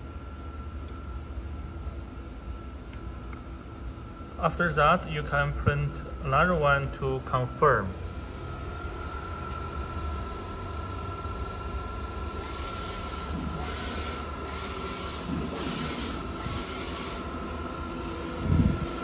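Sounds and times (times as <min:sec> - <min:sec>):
thin steady whine: 0:00.0 - 0:19.0
printer carriage low rumble: 0:07.7 - 0:19.0.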